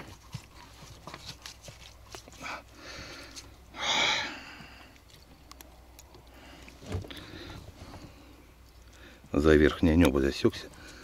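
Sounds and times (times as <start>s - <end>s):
clicks and rustles of hands: 0.0s - 3.6s, 4.6s - 7.3s
breathy exhale: 2.4s - 5.0s.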